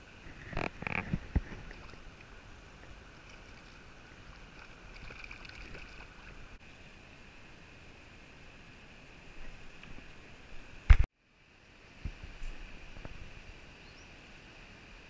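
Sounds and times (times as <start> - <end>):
fish splashing in water: 1.2 - 2.4, 3.1 - 6.6.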